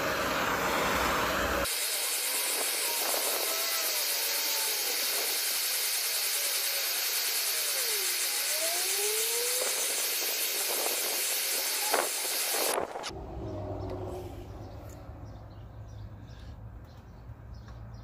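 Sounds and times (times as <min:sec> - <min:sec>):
hand torch flame hissing: 0:00.0 - 0:13.1.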